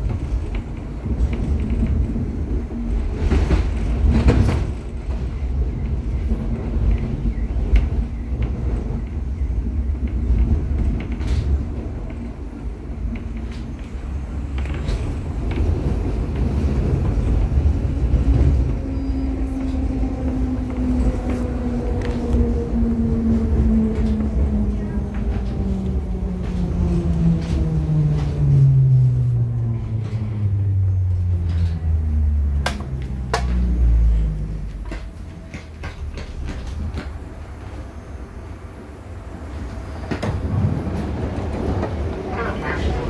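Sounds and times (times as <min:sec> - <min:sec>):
train rumbling on track: 0:00.0 - 0:43.0
train whine gliding down: 0:12.5 - 0:43.0.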